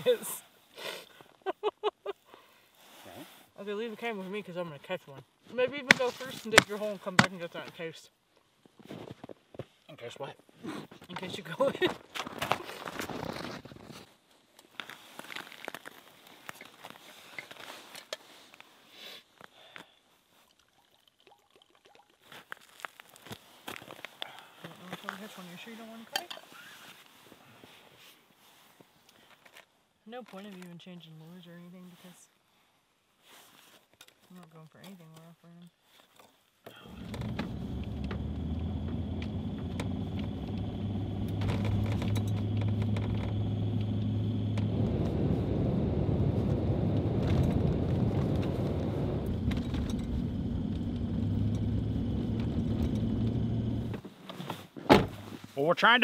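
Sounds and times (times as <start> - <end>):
liquid pouring into metal cup: 20.5 - 22.6
engine and tyre rumble: 36.8 - 54.1.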